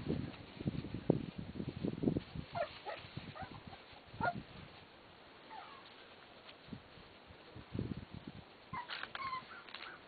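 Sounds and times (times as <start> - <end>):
puppies yipping and whimpering: 2.5 - 4.4, 5.5 - 5.9, 8.7 - 10.0.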